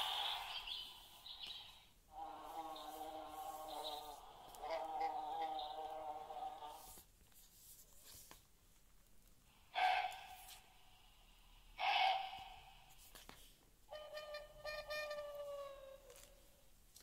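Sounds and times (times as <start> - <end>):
deer barks through small speaker: 2.1 - 7.0, 9.7 - 10.5, 11.8 - 12.8
page-turning rustles: 6.9 - 9.1.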